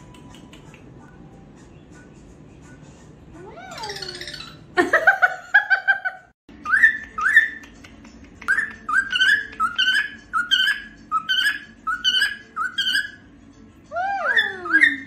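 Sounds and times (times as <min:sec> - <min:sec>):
cockatiel chirping: 0:08.5 - 0:13.3.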